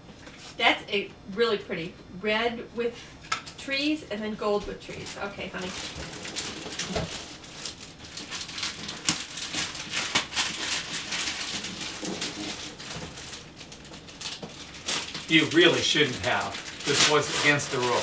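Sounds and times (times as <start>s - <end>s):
wrapping paper tearing: 4.4s - 18.0s.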